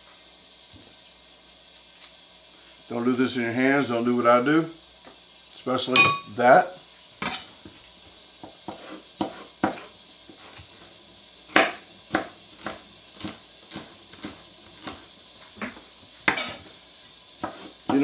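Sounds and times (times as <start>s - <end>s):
knife slicing vegetables: 8.4s - 10.8s, 11.5s - 18.0s.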